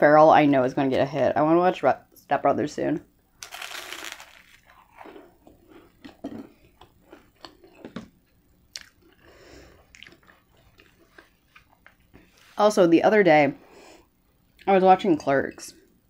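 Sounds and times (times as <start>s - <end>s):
person chewing food: 3.5s - 12.2s.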